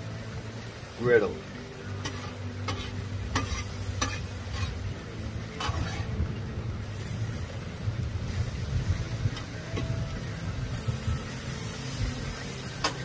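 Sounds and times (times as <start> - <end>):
beef sizzling on a griddle: 0.0 - 13.0
low hum: 1.4 - 13.0
metal spatula scraping steel: 2.0 - 4.8, 5.5 - 6.2.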